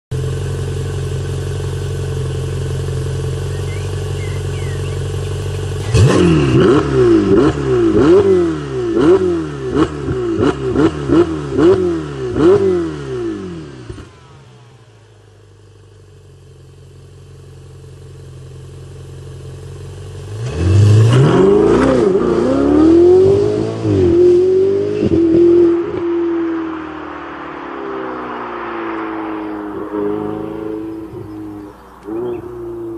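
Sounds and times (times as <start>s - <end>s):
sports car engine idling: 0.1s - 10.1s, 11.4s - 20.6s, 29.4s - 32.9s
engine revving in sharp blips: 2.3s - 14.8s, 20.3s - 32.9s
car accelerating hard: 3.3s - 14.3s, 20.3s - 32.9s.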